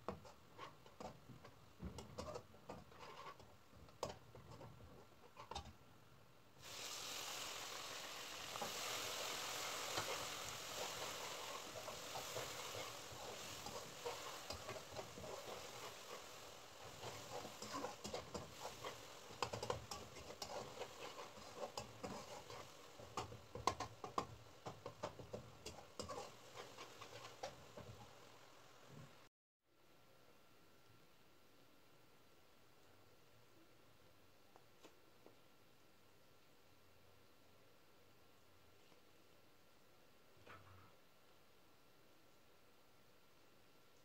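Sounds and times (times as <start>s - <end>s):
masala frying in oil: 0.0s - 29.3s
metal spatula scraping a pan: 2.0s - 3.5s, 8.2s - 28.2s.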